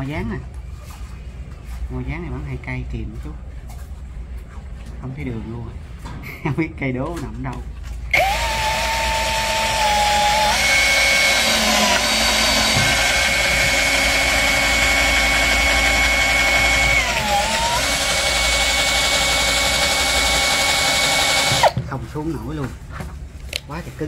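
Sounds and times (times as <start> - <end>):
power drill driving a screw: 8.1 - 21.8.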